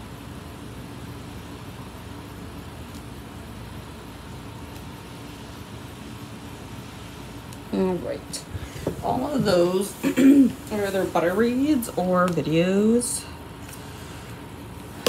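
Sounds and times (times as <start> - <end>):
air conditioner humming: 0.0 - 15.0.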